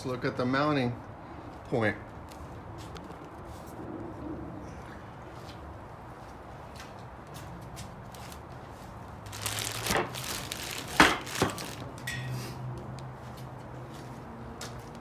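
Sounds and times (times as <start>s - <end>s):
crinkly rustle: 9.2s - 12.0s.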